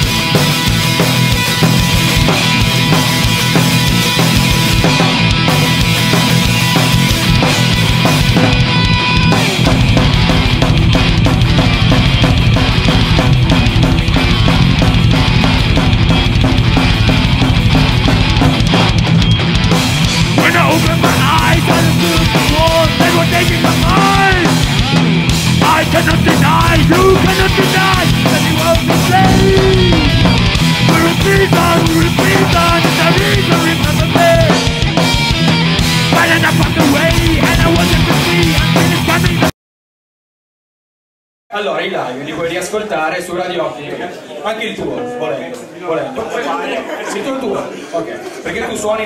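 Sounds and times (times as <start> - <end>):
bass guitar: 0.0 - 39.5
driving drum beat: 0.0 - 39.5
electric guitars: 0.0 - 39.5
rock band playing live: 0.0 - 39.5
man singing: 20.3 - 35.0, 36.0 - 39.5.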